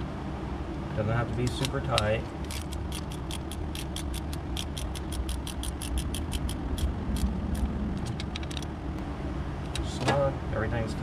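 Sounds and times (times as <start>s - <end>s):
steady low hum: 0.0s - 11.0s
ratchet wrench clicking: 1.6s - 8.7s.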